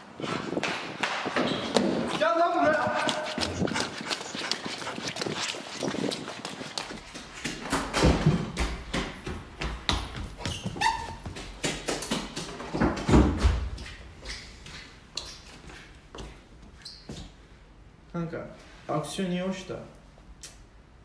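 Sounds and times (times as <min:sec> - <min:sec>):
running footsteps: 0:00.0 - 0:16.4
heavy panting breathing: 0:02.9 - 0:06.7
short squeak: 0:10.5 - 0:11.2.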